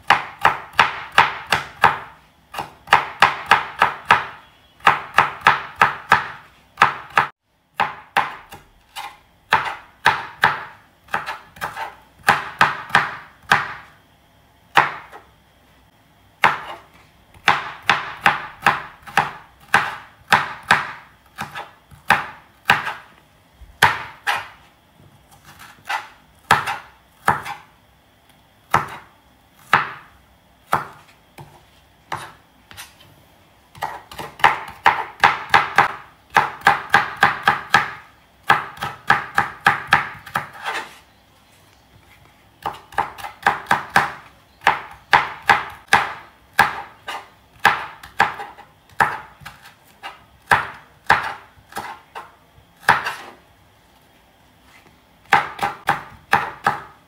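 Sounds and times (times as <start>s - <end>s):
knife dicing on cutting board: 0.1s - 13.7s, 23.8s - 24.6s, 30.7s - 33.0s, 33.8s - 36.0s, 38.5s - 41.0s, 42.6s - 53.4s.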